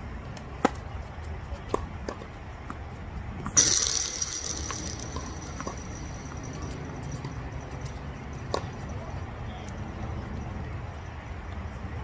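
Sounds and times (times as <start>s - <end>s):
metallic clash with high ring: 3.6s - 7.2s.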